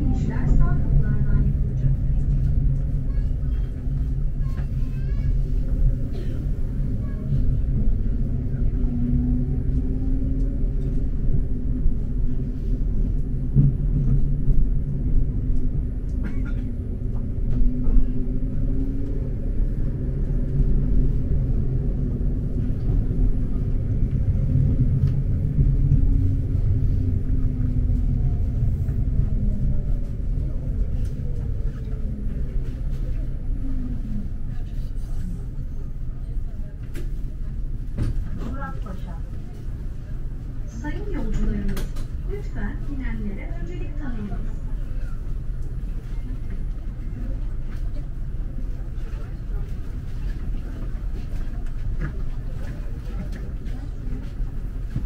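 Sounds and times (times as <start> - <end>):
tram rumble: 0.0 - 55.0.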